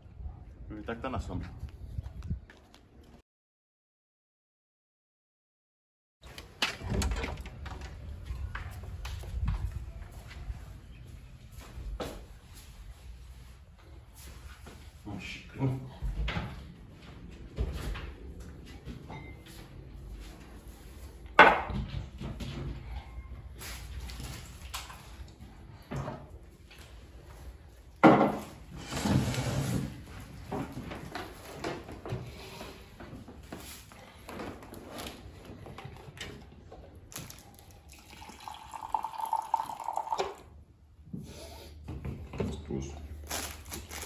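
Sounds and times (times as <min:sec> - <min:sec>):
coffee pouring into a ceramic mug: 0:37.9 - 0:40.5.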